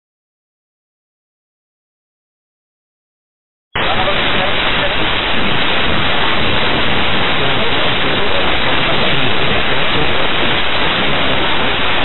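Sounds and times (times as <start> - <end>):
radio static hiss: 3.8 - 12.0.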